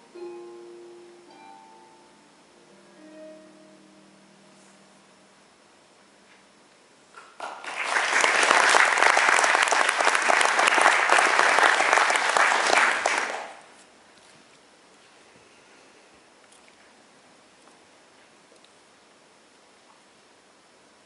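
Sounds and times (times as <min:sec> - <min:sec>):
audience applauding: 0:07.2 - 0:13.7.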